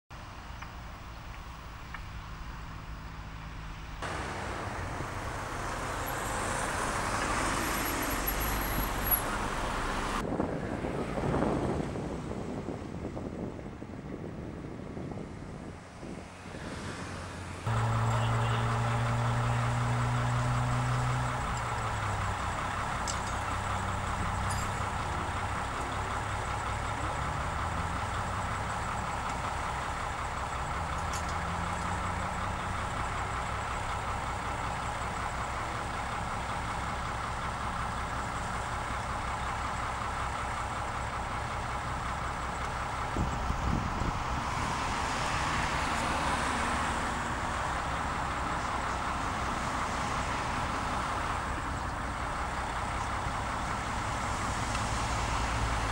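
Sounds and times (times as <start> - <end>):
vehicle engines idling: 0.1 - 55.9
vehicle passing on wet road: 4.0 - 12.2, 42.9 - 55.9.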